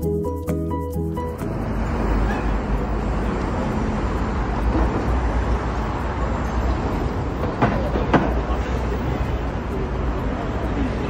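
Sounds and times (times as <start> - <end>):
city traffic rumble: 0.0 - 11.0.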